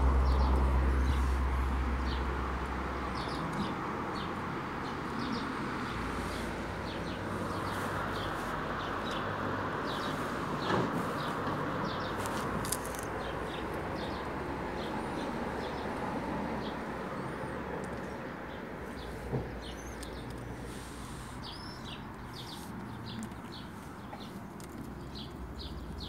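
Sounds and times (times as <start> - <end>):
small birds chirping: 0.2 - 2.4, 3.0 - 26.0.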